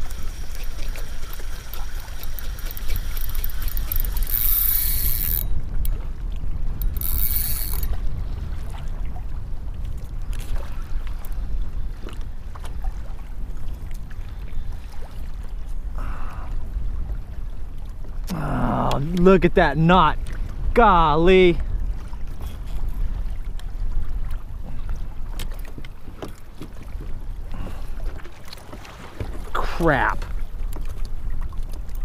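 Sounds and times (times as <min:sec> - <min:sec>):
fishing reel drag buzzing: 0:00.0 - 0:05.6, 0:06.8 - 0:08.0
water around kayak: 0:00.0 - 0:32.0
wind rumble on microphone: 0:02.1 - 0:19.0, 0:20.1 - 0:32.0.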